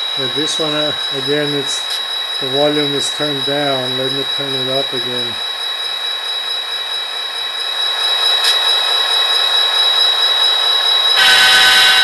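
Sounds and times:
model locomotive diesel engine sound: 0.0s - 12.0s
person speaking: 0.1s - 5.4s.

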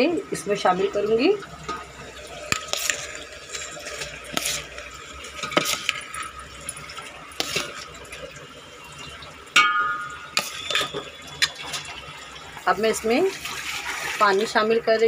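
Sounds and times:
wet rice rustling: 2.4s - 8.0s, 13.3s - 14.4s
bowl clinking against a pot: 9.5s - 11.6s
metal clang with ring: 9.6s - 11.0s.

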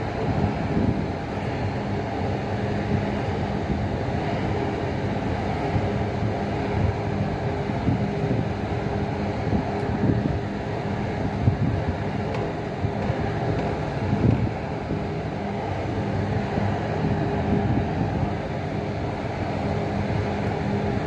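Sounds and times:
low engine hum: 0.0s - 21.0s
wind buffeting microphone: 0.0s - 21.0s.

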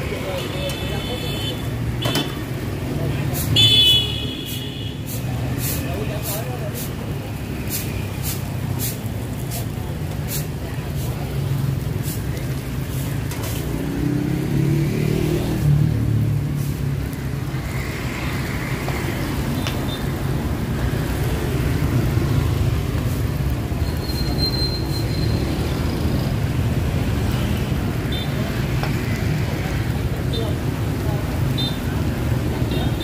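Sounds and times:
road traffic rumble: 0.0s - 33.0s
engine passing close by: 13.6s - 16.8s.

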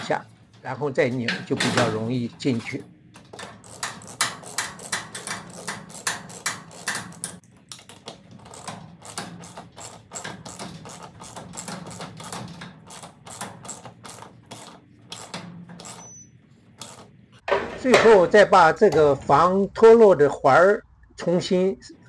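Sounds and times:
hand tool clicking on metal bracket: 3.4s - 7.9s.

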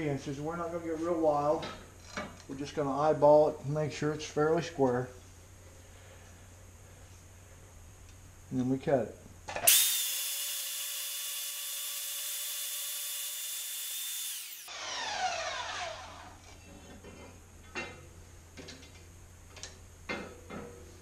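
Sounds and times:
bandsaw cutting steel: 9.7s - 16.4s
motor winding down: 9.7s - 16.5s.

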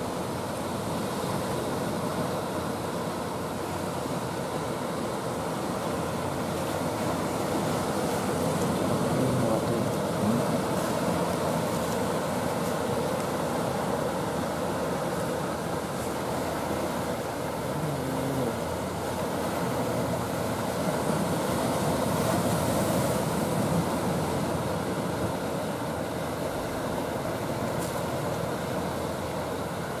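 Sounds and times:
boat engine rumble: 0.0s - 30.0s
choppy water: 0.0s - 30.0s.

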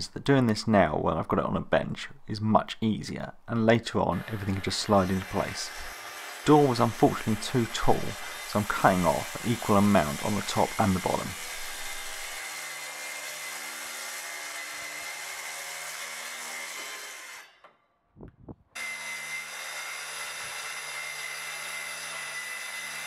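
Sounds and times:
track saw cutting wood: 4.1s - 17.7s, 18.8s - 23.0s.

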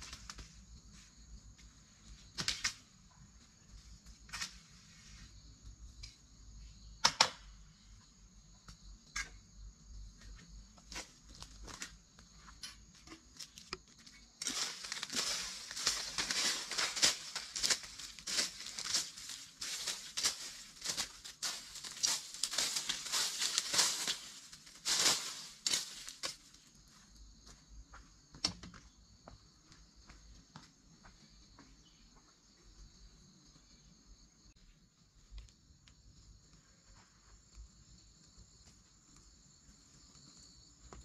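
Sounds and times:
high insect drone: 0.0s - 28.1s
dry leaves and twigs crackling: 10.9s - 26.8s.

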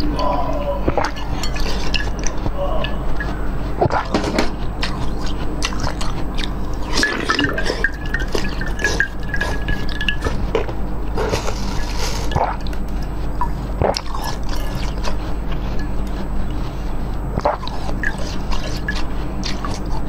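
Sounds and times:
wet mouth sounds: 0.0s - 16.7s, 17.3s - 20.0s
thin steady squeal: 13.0s - 20.0s
crunching and chewing ice: 17.4s - 20.0s.

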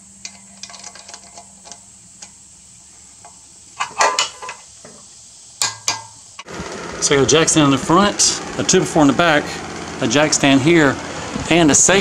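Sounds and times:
ratchet clicks: 0.2s - 2.4s
metallic clank: 3.2s - 5.0s, 5.6s - 6.5s.

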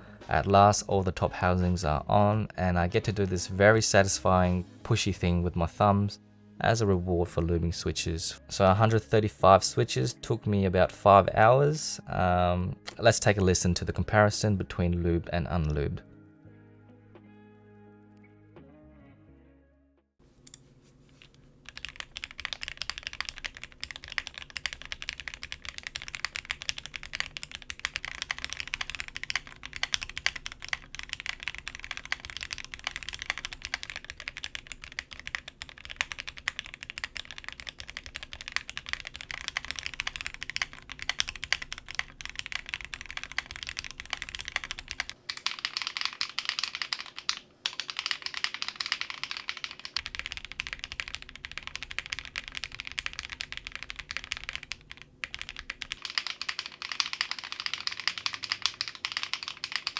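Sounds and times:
fast mechanical keyboard typing: 21.6s - 59.9s.

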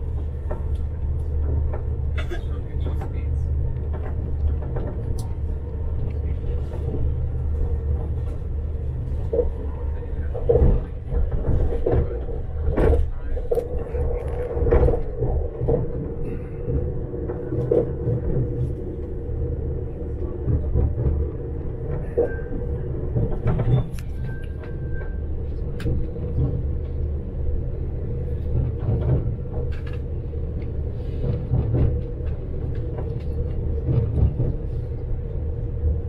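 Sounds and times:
train carriage rumble: 0.0s - 36.0s.

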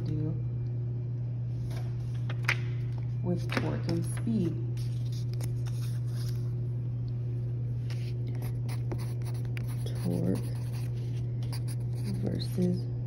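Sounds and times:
steady low hum: 0.0s - 13.0s
card rustling: 4.0s - 6.6s
pencil scratching on paper: 8.4s - 12.5s.

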